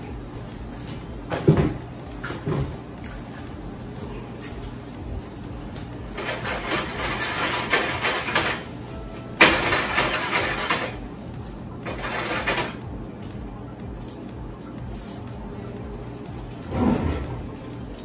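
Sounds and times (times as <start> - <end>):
pan scraping on burner: 6.1 - 8.8, 9.4 - 11.0, 11.9 - 12.8, 16.6 - 17.6.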